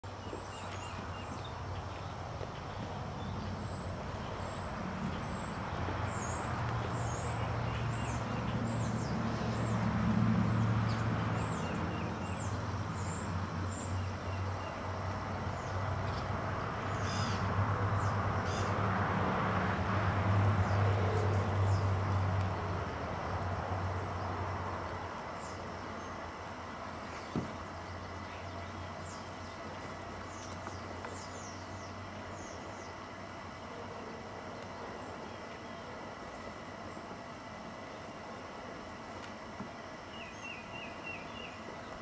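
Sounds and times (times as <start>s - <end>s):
small birds chirping: 0.1s - 9.9s, 10.5s - 18.8s, 24.1s - 33.8s, 39.8s - 42.0s.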